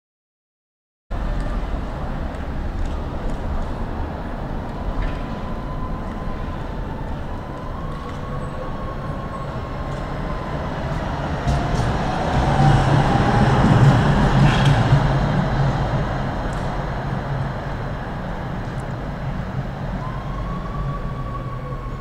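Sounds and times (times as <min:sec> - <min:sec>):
tram wheels rumbling on rails: 0:01.2 - 0:22.0.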